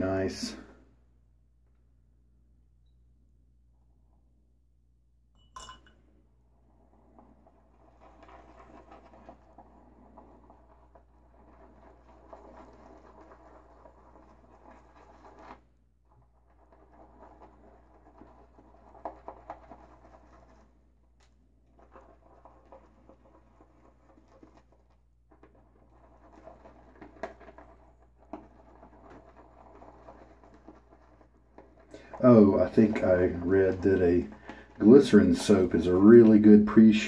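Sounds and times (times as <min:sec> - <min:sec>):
shaving brush swishing lather: 0:07.0 - 0:15.6, 0:21.7 - 0:37.0.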